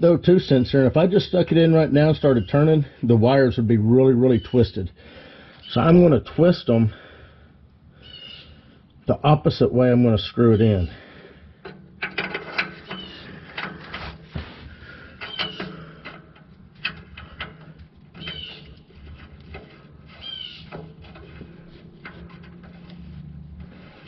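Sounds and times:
steady low hum: 0:00.0 - 0:24.0
small metallic clicks and taps: 0:11.6 - 0:14.5, 0:15.2 - 0:23.7
high squeaks: 0:12.4 - 0:24.0.

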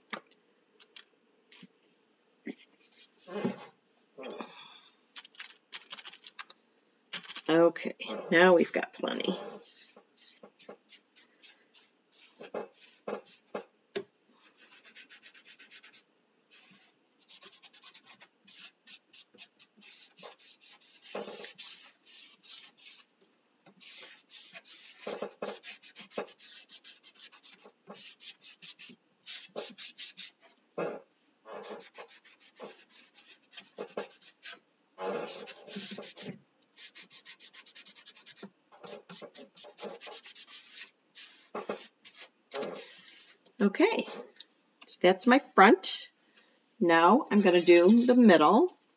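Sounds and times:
baby wipe rubbing on wood: 0:09.4 - 0:13.6, 0:14.6 - 0:23.1, 0:23.8 - 0:30.6, 0:31.6 - 0:43.4.

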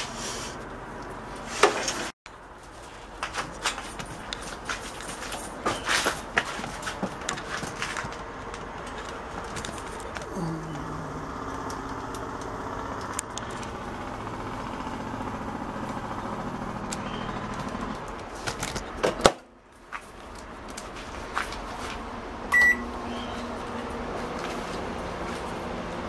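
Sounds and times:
microwave oven humming: 0:09.6 - 0:18.1
loud keypad beep: 0:22.5 - 0:22.9.

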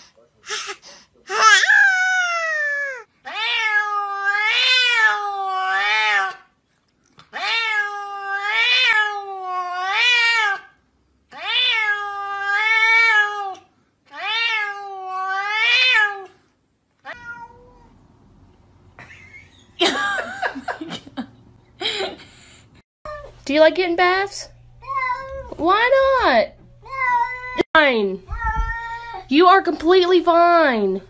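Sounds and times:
cat meowing: 0:01.3 - 0:06.4, 0:07.3 - 0:10.7, 0:11.3 - 0:16.3, 0:17.0 - 0:18.0, 0:24.8 - 0:25.6, 0:26.8 - 0:27.6, 0:28.3 - 0:29.3.

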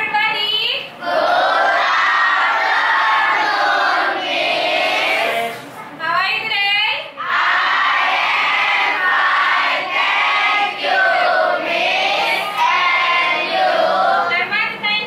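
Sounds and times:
children singing in unison: 0:01.0 - 0:05.6, 0:07.2 - 0:14.3.

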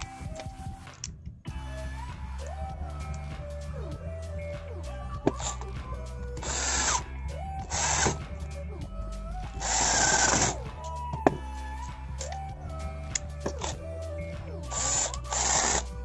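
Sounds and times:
background music: 0:00.0 - 0:16.0
cordless drill running: 0:06.4 - 0:07.0, 0:07.6 - 0:08.2, 0:09.6 - 0:10.6, 0:14.6 - 0:16.0.

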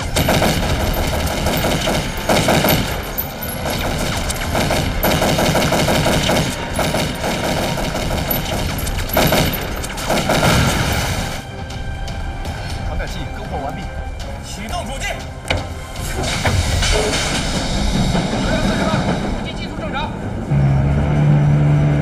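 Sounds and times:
automatic gunfire bursts: 0:00.2 - 0:10.9.

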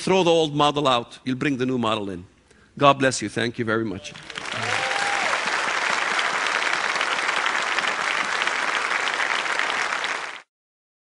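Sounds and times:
audience applauding: 0:04.1 - 0:10.5.

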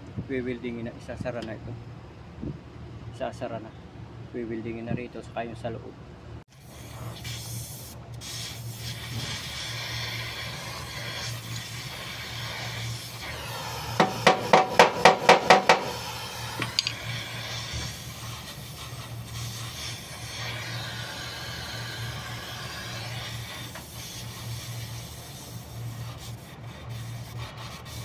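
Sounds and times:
welding torch hissing: 0:06.5 - 0:28.0
sharp metallic taps: 0:14.0 - 0:16.0.

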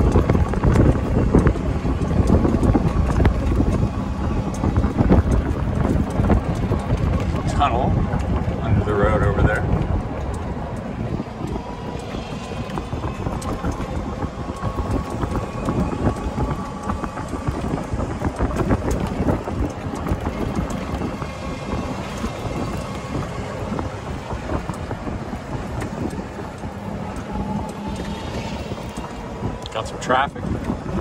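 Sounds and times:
cart rattling: 0:00.0 - 0:31.0
tyres on wet pavement: 0:00.0 - 0:31.0
wind on microphone: 0:00.0 - 0:31.0.

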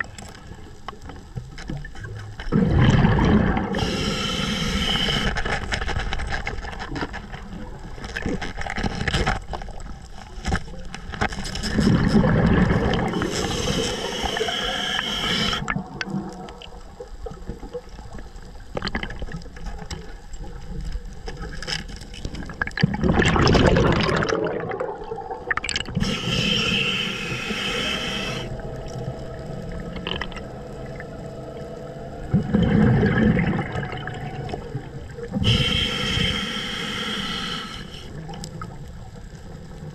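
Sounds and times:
bubbling exhaled air: 0:02.5 - 0:05.4, 0:11.8 - 0:16.4, 0:22.8 - 0:38.3
scuba regulator hissing inhales: 0:03.6 - 0:05.6, 0:13.0 - 0:15.7, 0:26.0 - 0:28.8, 0:35.4 - 0:38.2.

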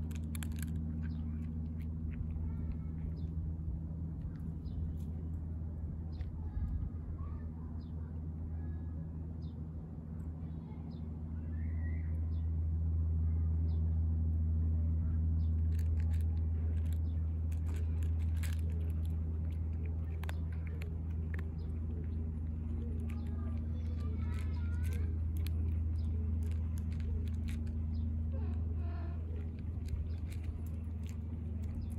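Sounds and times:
faint chirps and clicks: 0:15.4 - 0:31.9
motor humming: 0:15.5 - 0:31.9.

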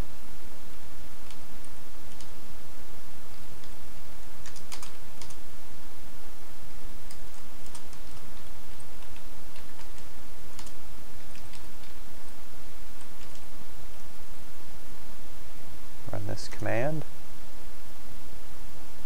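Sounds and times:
background hiss: 0:00.0 - 0:19.0
keyboard typing: 0:01.2 - 0:02.4, 0:04.4 - 0:05.4, 0:07.0 - 0:12.0, 0:13.0 - 0:13.5.

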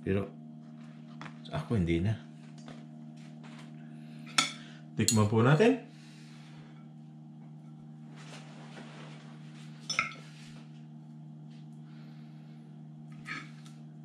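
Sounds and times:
low hum: 0:00.0 - 0:14.0
cutlery scraping a ceramic plate: 0:13.1 - 0:13.7.

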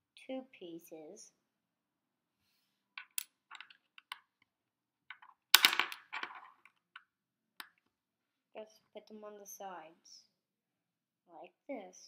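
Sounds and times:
plastic toy bricks clicking together: 0:03.0 - 0:04.3, 0:05.1 - 0:07.8.

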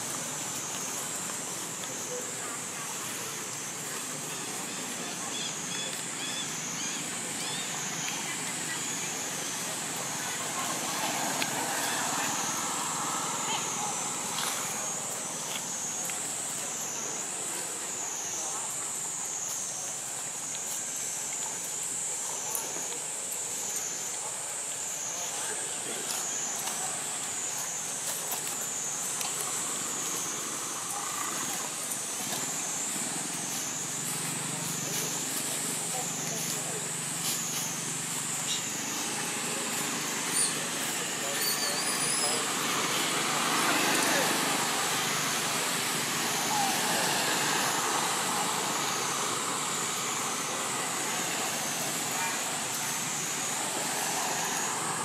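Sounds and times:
cicadas buzzing: 0:00.0 - 0:55.0.

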